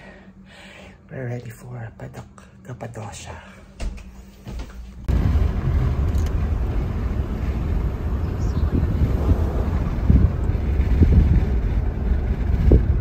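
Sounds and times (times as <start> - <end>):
car cabin road and engine rumble: 5.0 - 13.0.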